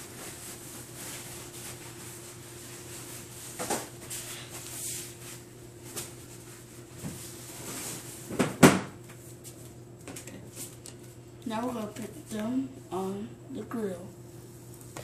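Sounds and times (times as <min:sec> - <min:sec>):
faint steady hum: 0:00.0 - 0:15.0
objects knocking on kitchen counter: 0:08.3 - 0:09.0.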